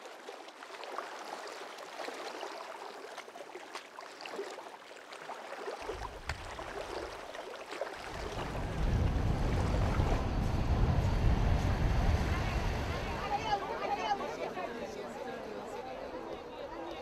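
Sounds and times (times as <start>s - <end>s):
water lapping and splashing: 0.0s - 14.6s
low rumble: 8.0s - 13.8s.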